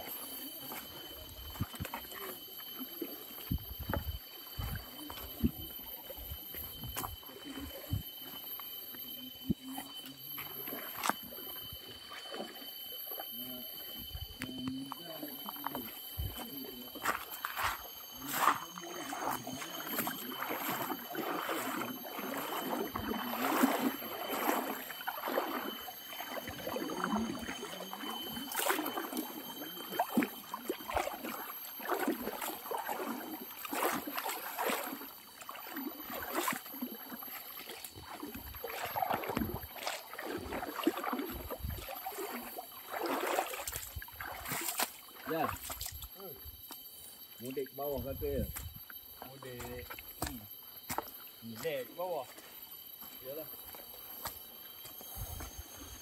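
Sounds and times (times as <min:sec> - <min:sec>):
feet splashing through water: 0:00.0 - 0:08.4, 0:09.0 - 0:13.3, 0:14.3 - 0:47.6
high whine: 0:00.0 - 0:34.1.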